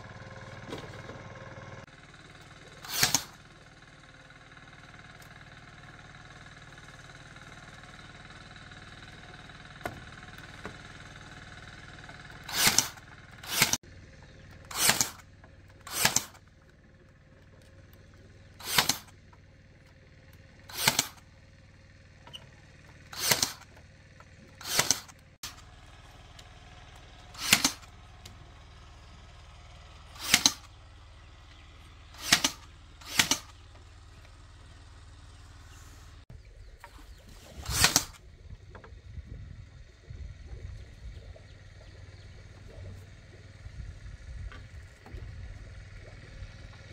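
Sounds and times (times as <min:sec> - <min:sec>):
hand tool swishing strokes: 0:12.5 - 0:13.8, 0:37.4 - 0:38.2.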